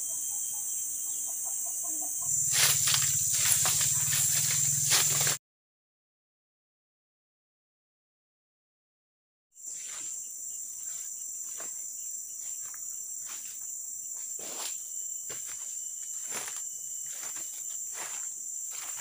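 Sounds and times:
insects chorus: 0:00.0 - 0:05.4, 0:09.6 - 0:19.0
footsteps in leaf litter: 0:02.3 - 0:05.4, 0:15.4 - 0:19.0.

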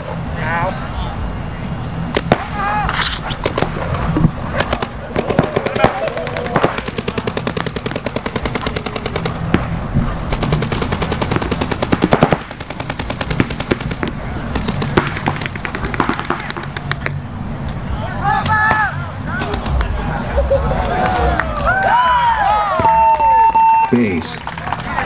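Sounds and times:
paintball markers firing rapidly: 0:02.2 - 0:17.2, 0:19.3 - 0:19.9.

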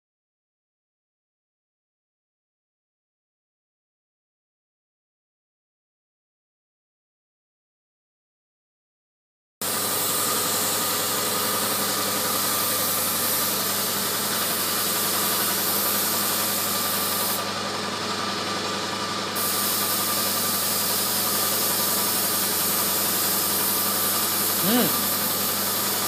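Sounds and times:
spray gun hissing: 0:09.6 - 0:17.4, 0:19.4 - 0:26.0
air supply motor hum: 0:09.6 - 0:26.0.

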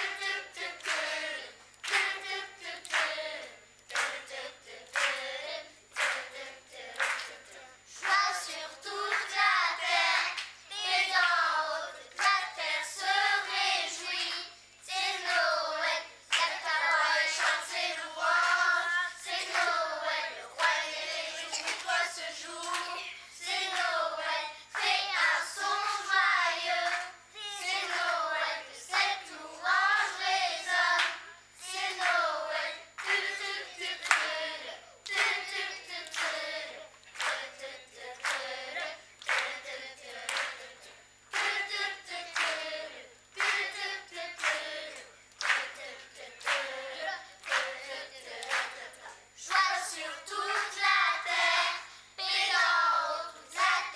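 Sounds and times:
children's choir singing: 0:00.0 - 0:53.9
hand claps: 0:00.2 - 0:01.1, 0:01.8 - 0:04.3, 0:04.9 - 0:05.3, 0:06.0 - 0:06.3, 0:07.0 - 0:07.4, 0:08.0 - 0:09.4, 0:10.2 - 0:11.4, 0:12.1 - 0:12.4, 0:16.3 - 0:16.6, 0:19.4 - 0:19.8, 0:21.5 - 0:23.1, 0:24.7 - 0:25.3, 0:27.8 - 0:28.2, 0:30.9 - 0:31.2, 0:33.0 - 0:33.4, 0:34.0 - 0:34.4, 0:35.0 - 0:36.5, 0:37.2 - 0:40.7, 0:41.3 - 0:42.7, 0:43.4 - 0:46.8, 0:47.4 - 0:48.8, 0:50.5 - 0:50.8.

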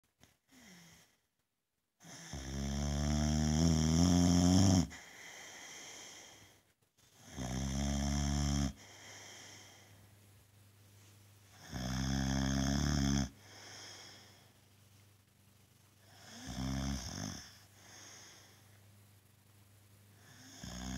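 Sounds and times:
dog snoring loudly: 0:02.0 - 0:05.0, 0:07.2 - 0:08.8, 0:11.6 - 0:14.2, 0:16.0 - 0:18.4, 0:20.2 - 0:20.9.

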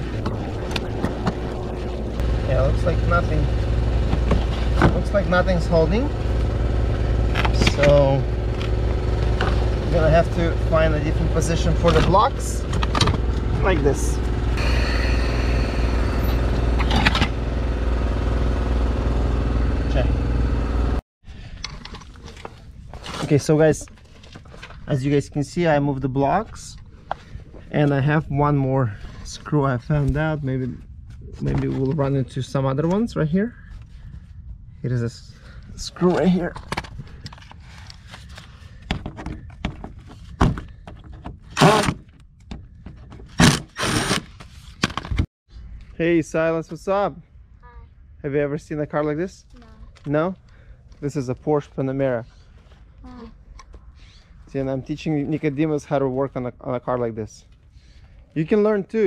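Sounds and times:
motor humming: 0:13.0 - 0:21.0
cordless driver burst: 0:43.4 - 0:44.3.

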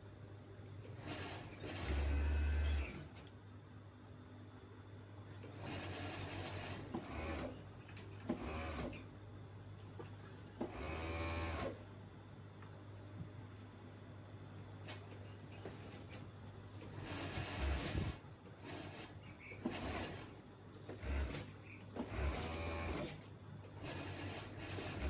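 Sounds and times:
overlock sewing machine stitching: 0:00.8 - 0:03.1, 0:05.4 - 0:09.0, 0:10.6 - 0:11.8, 0:16.8 - 0:25.0.

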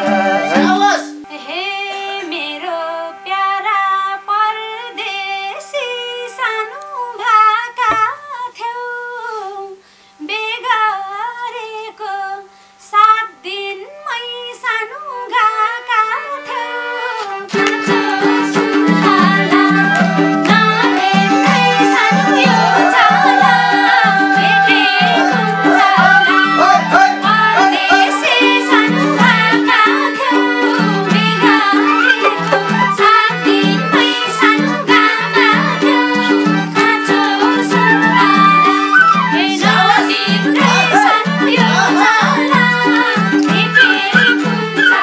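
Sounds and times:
ornamented solo melody: 0:00.0 - 0:01.4, 0:17.6 - 0:45.0
band playing a steady beat: 0:18.0 - 0:34.8.

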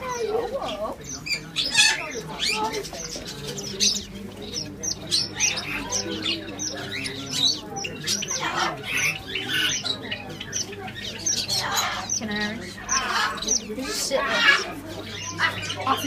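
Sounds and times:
cage birds chirping and squawking: 0:00.0 - 0:16.0.

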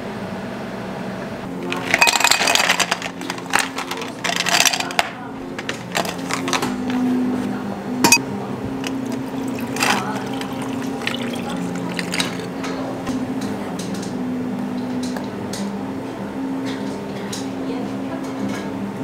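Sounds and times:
coffee pouring: 0:01.6 - 0:05.0, 0:08.8 - 0:12.6
ice clinking: 0:01.6 - 0:06.7, 0:08.8 - 0:12.6
water pouring over ice: 0:08.9 - 0:12.5.

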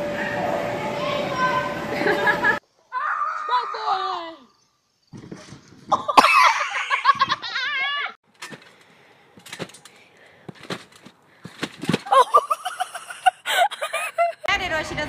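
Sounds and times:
high-pitched laughter: 0:06.0 - 0:08.2, 0:12.1 - 0:14.5.

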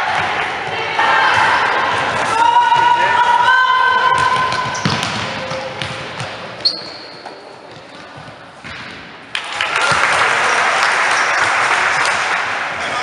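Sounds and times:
crowd shouting and cheering: 0:00.0 - 0:05.8, 0:09.3 - 0:13.0
sneaker squeak: 0:04.1 - 0:08.4
basketball bouncing on court floor: 0:04.1 - 0:09.1.

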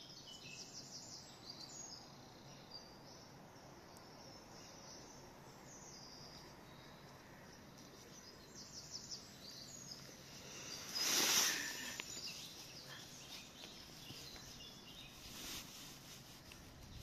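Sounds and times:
small birds chirping: 0:00.0 - 0:17.0
loud rustling: 0:10.4 - 0:17.0.

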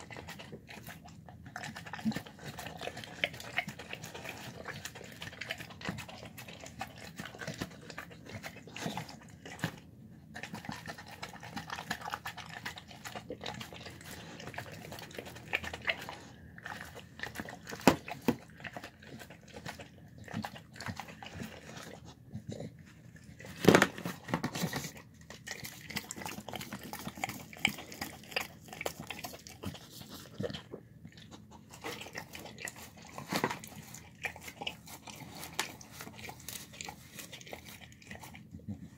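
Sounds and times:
dog chewing and crunching: 0:00.0 - 0:38.9.

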